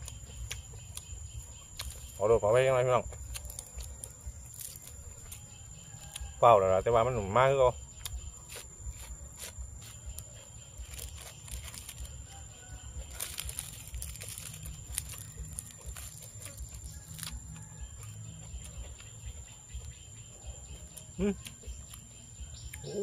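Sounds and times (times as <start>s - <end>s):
person chewing food: 0.0s - 2.2s, 3.0s - 6.4s, 7.9s - 23.0s
lettuce leaves rustling: 8.4s - 17.6s.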